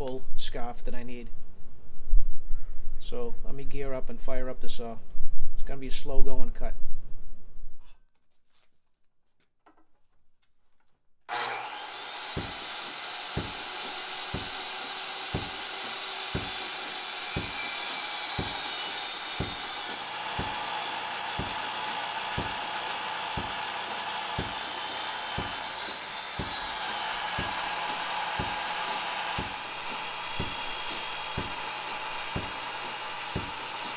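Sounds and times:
circular saw whining: 11.3 - 33.9.

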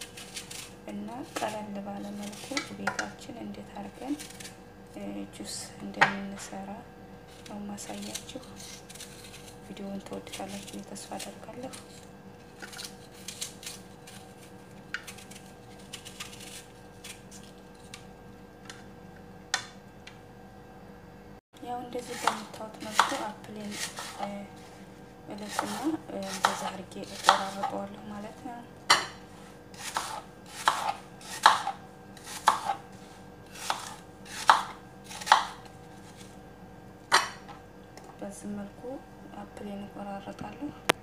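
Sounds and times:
knife scraping apple peel: 0.0 - 2.9, 4.0 - 4.6, 7.3 - 18.1, 22.0 - 27.8, 28.9 - 36.4
faint steady hum: 0.0 - 41.0
knife cutting apple on board: 22.0 - 24.8, 25.4 - 27.8, 28.9 - 32.9, 33.5 - 36.3.

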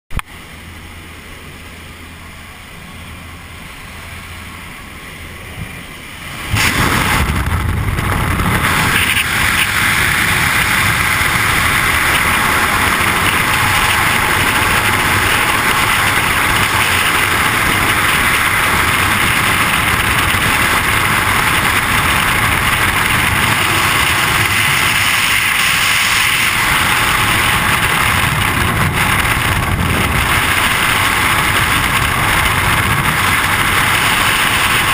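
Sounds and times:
plane engine drone: 0.1 - 34.9
wind noise on microphone: 5.5 - 34.9.

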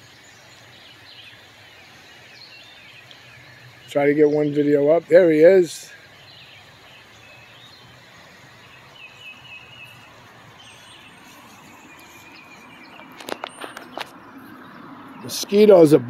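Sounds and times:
faint bird chirps: 5.9 - 15.3.

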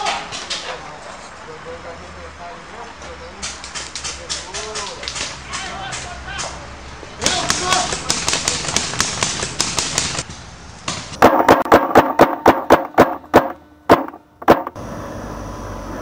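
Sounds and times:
paintball marker firing: 7.2 - 10.2, 10.9 - 14.8.

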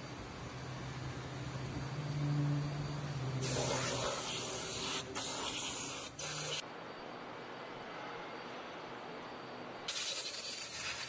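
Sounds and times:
pressurised jet hissing: 3.4 - 6.6.

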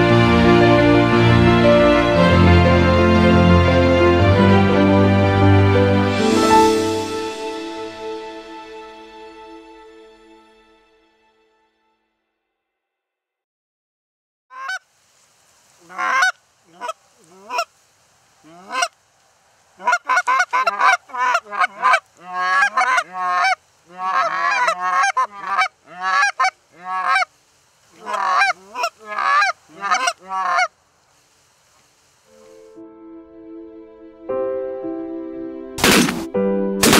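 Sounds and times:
geese honking: 14.5 - 14.8, 15.8 - 17.7, 18.4 - 19.0, 19.8 - 27.3, 27.9 - 30.7.

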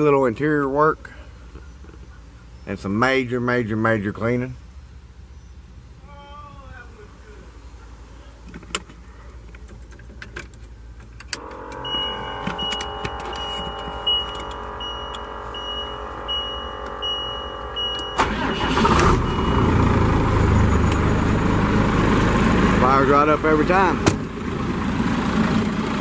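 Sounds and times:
diesel engine clattering: 8.7 - 26.0
engine cranking whir: 11.1 - 21.3
warning buzzer beeping: 11.4 - 19.8.

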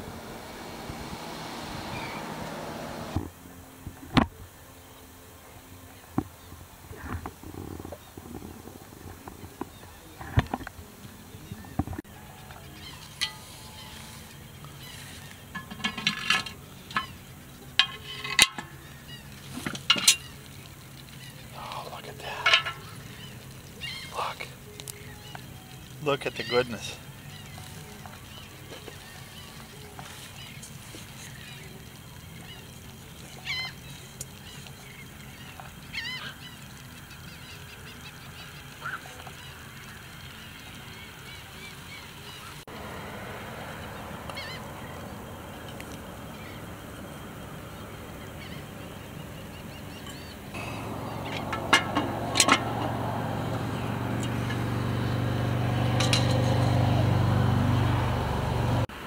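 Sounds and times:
steady low hum: 0.0 - 4.1
metallic clanks of cast-iron pot: 13.0 - 14.0, 15.4 - 18.8, 19.4 - 20.4, 22.3 - 23.0, 51.0 - 53.0, 55.9 - 56.8
short bird calls: 44.2 - 45.0.

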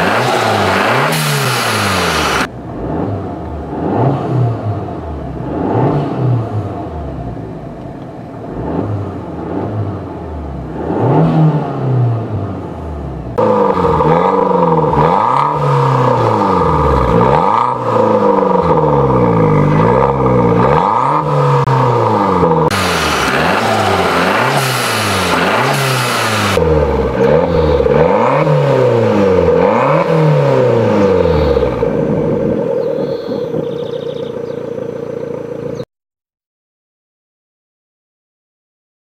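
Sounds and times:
car engine revving: 0.0 - 35.8
loud hissing rush: 22.7 - 26.6.

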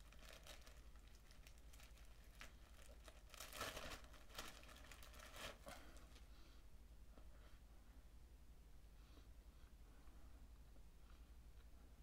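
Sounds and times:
plastic bag crinkling: 0.0 - 6.1.

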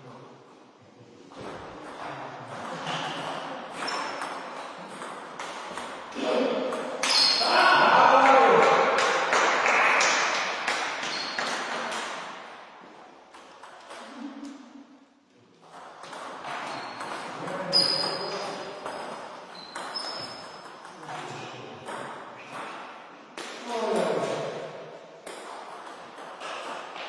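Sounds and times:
table tennis ball pinging: 3.3 - 7.4, 15.7 - 21.0.

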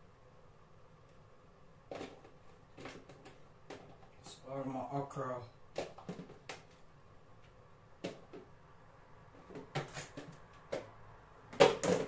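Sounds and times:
kitchen items clattering on counter: 9.4 - 10.9, 11.6 - 12.0.

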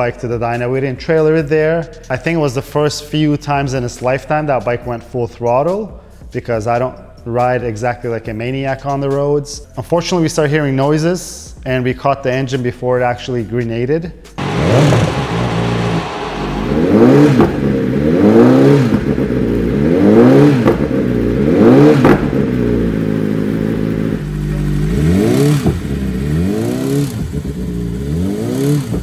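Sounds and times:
motorcycle engine revving: 14.4 - 29.0.

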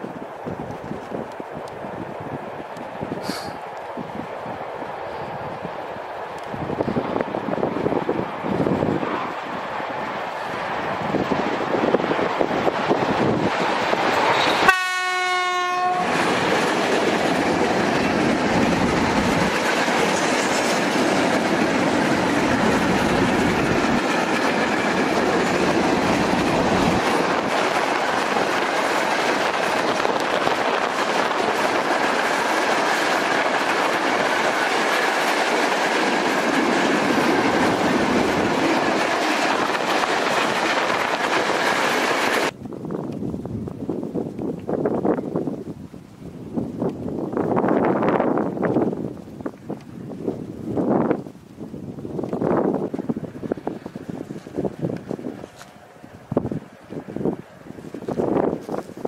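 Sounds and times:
freight train rolling on rails: 0.0 - 59.0
locomotive horn blast: 14.3 - 16.2.

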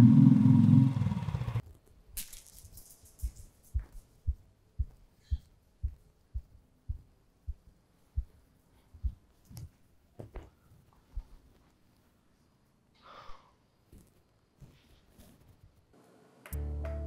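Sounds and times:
motorcycle engine running: 0.0 - 1.6
soft low thumps: 3.2 - 8.4, 9.0 - 9.2.

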